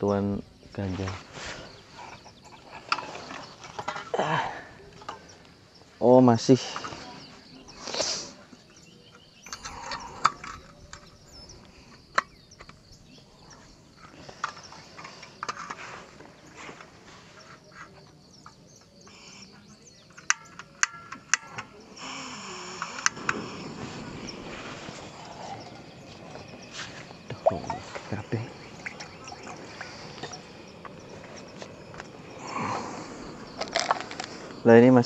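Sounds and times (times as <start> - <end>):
gas hissing: 6.4 - 17.7, 20.2 - 35.0.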